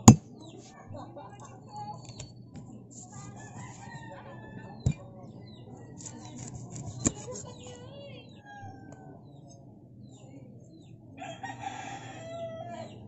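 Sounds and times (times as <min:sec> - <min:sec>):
cleaver chopping onto wooden block: 0:00.0 - 0:00.2.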